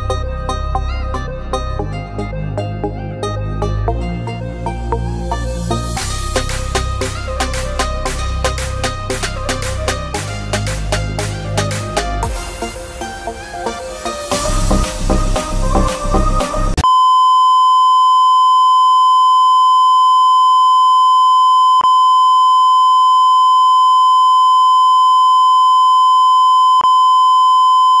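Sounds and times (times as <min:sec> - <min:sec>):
electronic background music: 0:00.0 - 0:16.8
steady electronic beep tone: 0:16.8 - 0:28.0.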